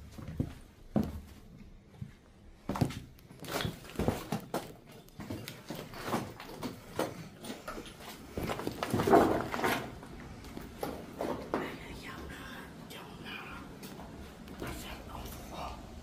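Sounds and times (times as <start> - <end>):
footsteps crunching on rubble: 0.1 - 11.6.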